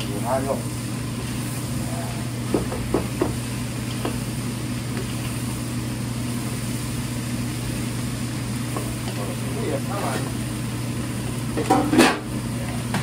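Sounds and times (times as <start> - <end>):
low machine hum: 0.0 - 13.0
utensils clacking and scraping wok: 11.6 - 12.3.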